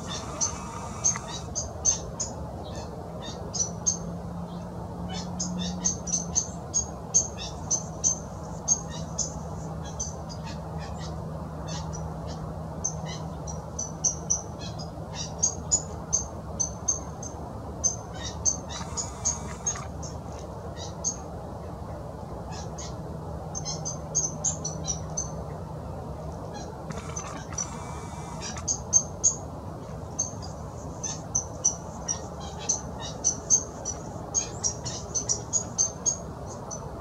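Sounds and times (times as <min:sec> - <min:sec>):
small birds chirping: 0:00.0 - 0:04.0, 0:12.8 - 0:21.2, 0:26.5 - 0:36.9
faint background hum: 0:00.0 - 0:37.0.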